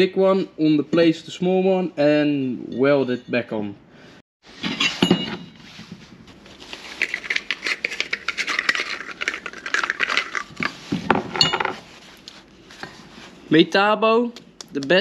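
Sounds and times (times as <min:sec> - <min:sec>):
rustling: 0:05.6 - 0:13.5.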